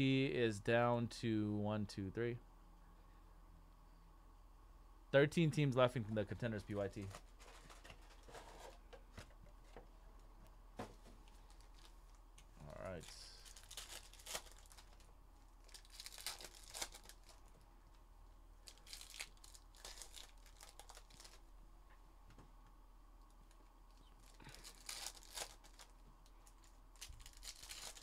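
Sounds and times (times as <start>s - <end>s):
foil wrappers tearing and crinkling: 13.0s - 17.6s, 18.6s - 21.4s, 24.1s - 28.0s.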